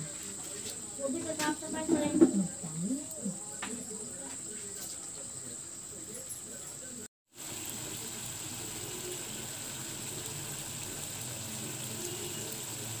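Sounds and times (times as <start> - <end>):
curry simmering and bubbling: 7.3 - 13.0.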